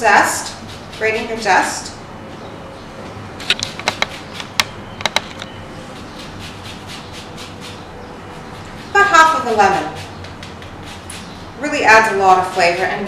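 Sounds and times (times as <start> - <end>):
sharp clicks: 3.4 - 5.6
grater scraping: 5.9 - 13.0.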